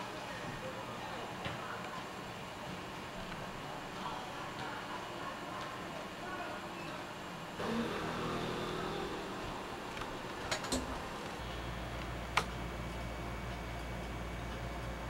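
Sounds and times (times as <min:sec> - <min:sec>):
low steady hum: 0:07.5 - 0:15.0.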